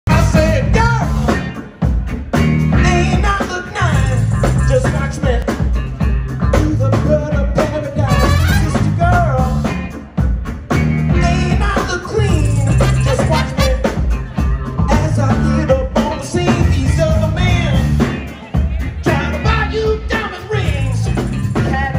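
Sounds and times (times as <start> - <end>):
live band playing: 0.1 - 21.9
horn section: 7.8 - 9.4, 12.4 - 14.4.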